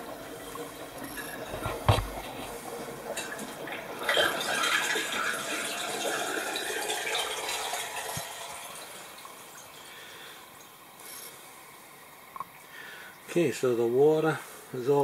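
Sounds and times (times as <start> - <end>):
water draining out of floor drain: 0.0 - 10.8.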